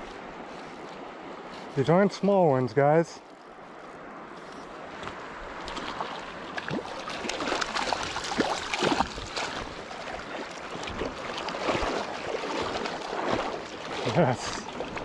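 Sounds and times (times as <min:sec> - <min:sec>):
fish splashing and thrashing: 0:05.6 - 0:15.0
water sloshing in landing net: 0:05.6 - 0:15.0.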